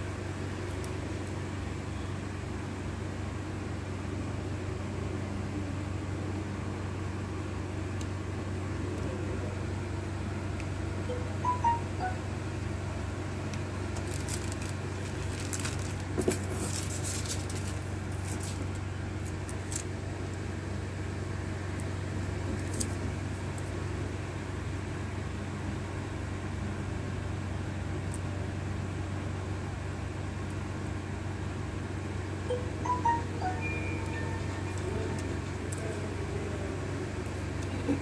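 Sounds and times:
low electrical hum: 0:00.0 - 0:38.0
light clicks and crackles: 0:21.8 - 0:23.8.

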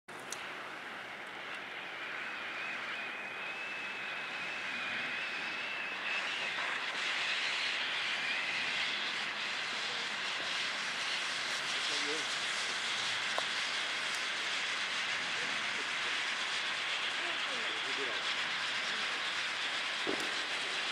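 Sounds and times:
firework fountain hissing: 0:00.2 - 0:20.9
high whistle-like tone: 0:01.7 - 0:12.2.

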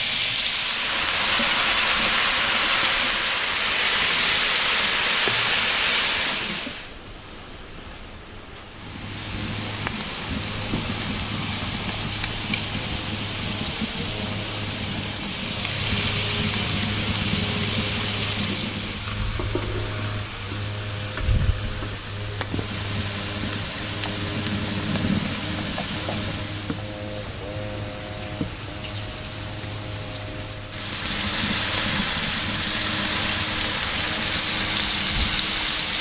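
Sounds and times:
mushrooms sizzling in frying pan: 0:00.0 - 0:06.7, 0:09.0 - 0:19.5, 0:30.6 - 0:36.0.

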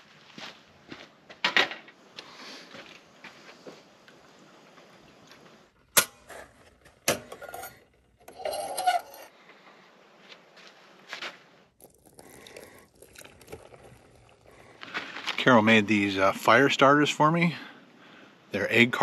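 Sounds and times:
dishes and utensils clinking: 0:07.1 - 0:09.3.

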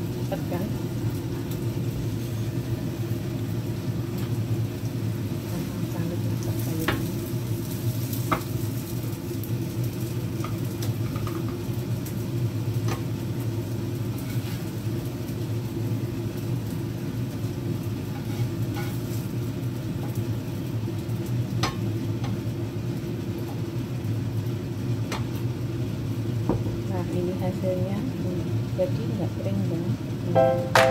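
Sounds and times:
spatula scraping a frying pan: 0:14.1 - 0:14.8, 0:18.1 - 0:19.3.

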